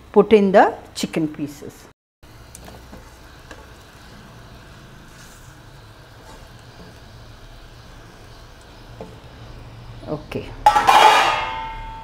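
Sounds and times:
gas flame hum and hiss: 0.0s - 12.0s
food cooking in a pan: 2.2s - 12.0s.

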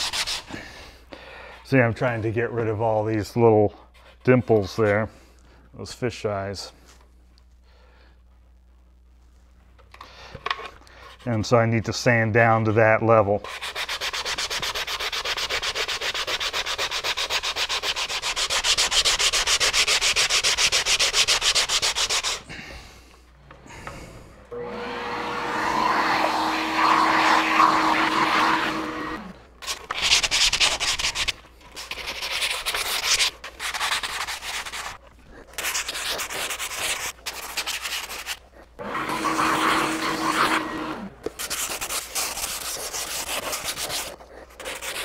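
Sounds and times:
sanding block scrubbing wood: 0.0s - 0.5s, 13.4s - 22.5s, 25.3s - 35.0s, 35.6s - 38.4s, 39.1s - 40.7s, 41.3s - 45.0s
small motor humming: 23.5s - 29.4s.

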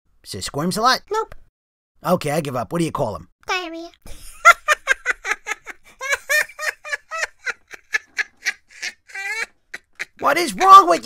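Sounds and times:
childlike voice laughing: 4.1s - 11.0s.

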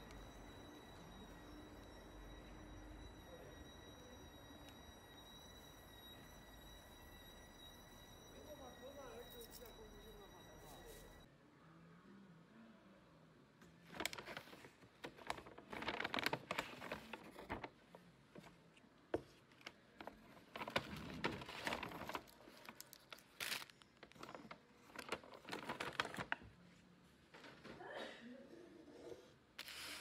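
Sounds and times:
paper bag crinkling: 13.9s - 17.8s, 20.4s - 26.4s.

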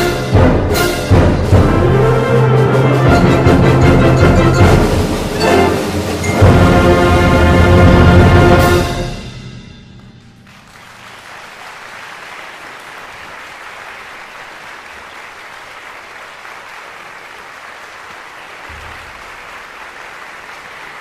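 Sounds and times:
wind band chord: 0.0s - 10.6s
audience applauding: 10.4s - 21.0s.

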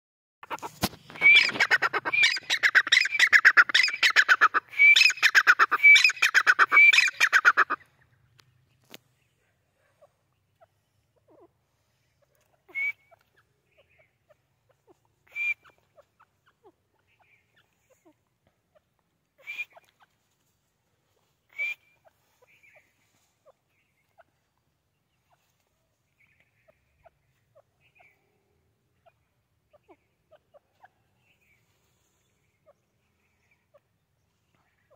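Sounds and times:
bird clucking: 0.4s - 20.4s, 21.5s - 31.7s
francolin calling: 1.1s - 8.1s.

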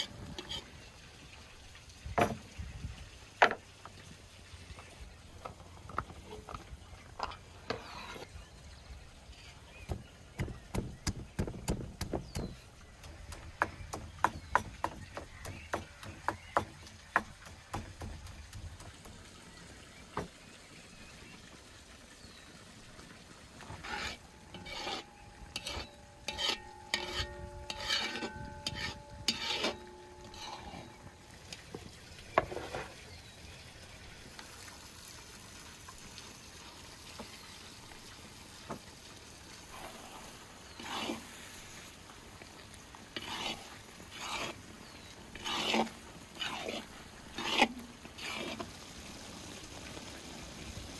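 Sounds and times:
pounding in wooden mortar: 9.9s - 19.2s
utensil striking metal pot: 24.4s - 31.3s.

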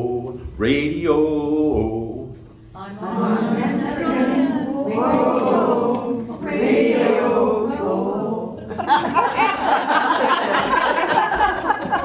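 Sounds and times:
audience singing together: 2.8s - 11.9s
crowd laughing: 8.6s - 12.0s.

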